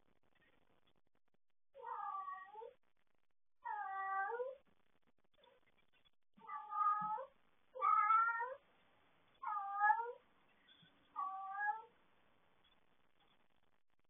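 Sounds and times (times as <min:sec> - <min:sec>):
cat meowing: 0:01.8 - 0:02.7, 0:03.6 - 0:04.6, 0:06.4 - 0:08.6, 0:09.4 - 0:10.2, 0:11.2 - 0:11.9.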